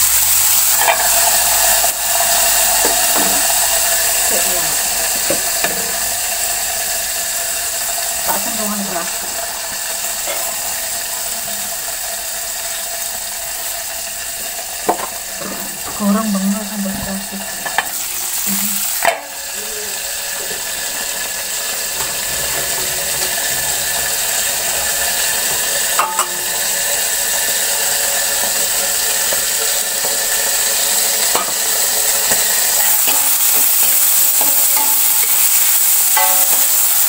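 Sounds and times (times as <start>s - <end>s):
oil sizzling in a wok: 0.0s - 37.0s
spatula stirring pan: 17.0s - 26.9s.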